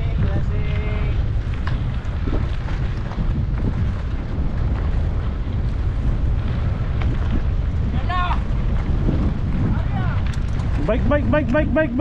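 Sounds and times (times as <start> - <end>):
wind buffeting microphone: 0.0 - 12.0
faint clicks and rattles: 10.2 - 11.0.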